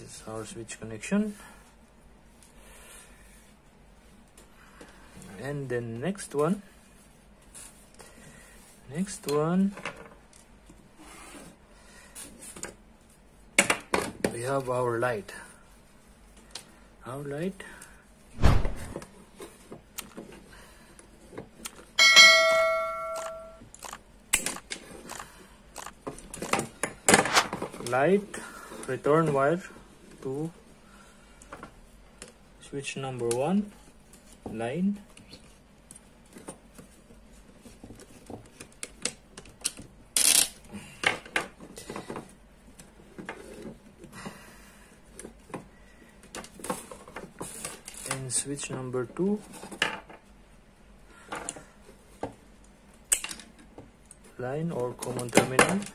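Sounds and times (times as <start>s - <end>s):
bright bell ding: 22.0s - 23.6s.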